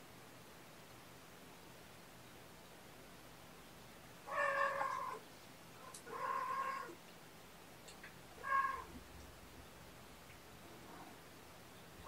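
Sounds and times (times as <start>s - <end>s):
cat meowing: 4.3s - 5.2s, 6.0s - 7.0s, 8.4s - 9.0s.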